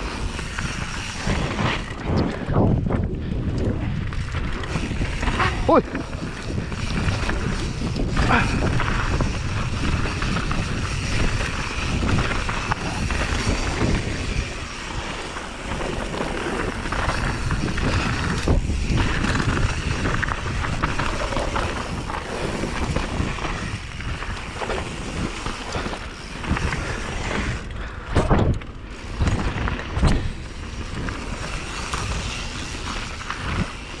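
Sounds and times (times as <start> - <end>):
bike rattling over bumps: 0.0 - 34.0
bike tyres rolling over dirt: 0.0 - 34.0
wind rushing on microphone: 0.0 - 34.0.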